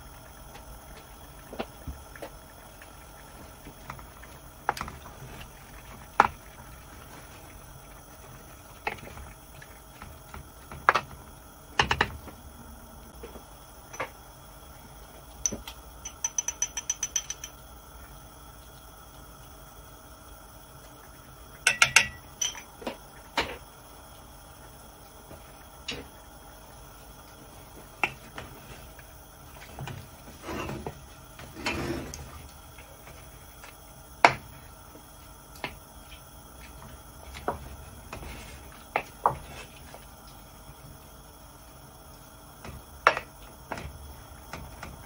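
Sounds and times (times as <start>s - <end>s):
sharp metallic taps: 15.4s - 17.5s
spoons knocking on metal pot: 15.4s - 17.6s, 21.6s - 22.7s.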